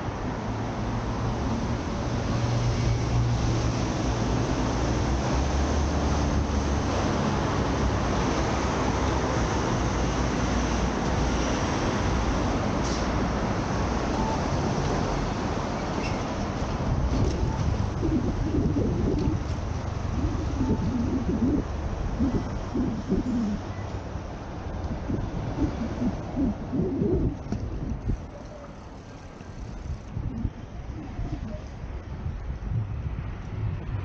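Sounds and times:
passing vehicles rushing: 0.0 - 34.0
deep engine rumble: 16.5 - 34.0.

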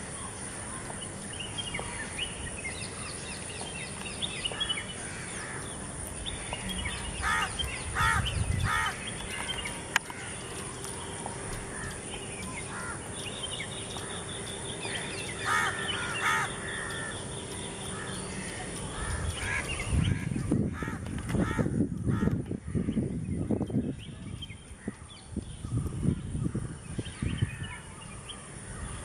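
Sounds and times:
birds twittering: 0.0 - 29.0
harsh cawing call: 15.4 - 17.3.

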